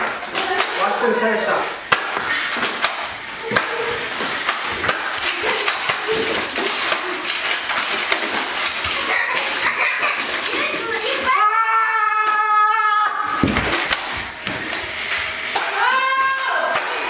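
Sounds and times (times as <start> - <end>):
darts striking furniture and floor: 1.9 - 9.6, 13.3 - 15.8.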